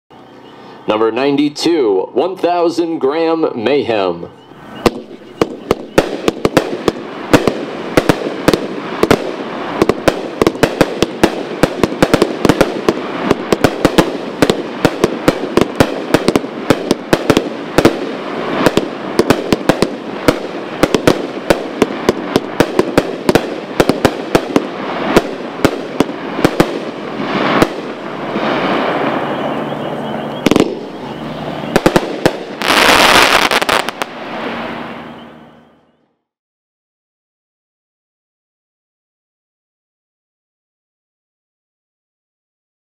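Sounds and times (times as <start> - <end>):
firework crackling: 4.6 - 35.7
firework cake bangs: 4.8 - 28.0, 30.4 - 34.0.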